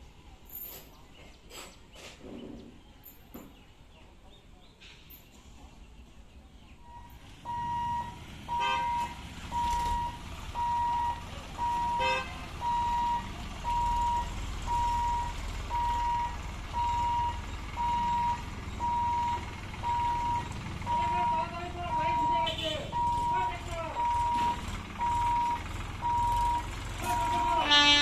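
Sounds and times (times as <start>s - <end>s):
vehicle engines rumbling: 0.0s - 28.0s
electronic warning beeps: 6.8s - 27.6s
vehicle horn toots: 8.5s - 9.1s, 11.9s - 12.4s, 22.1s - 23.0s, 27.0s - 28.0s.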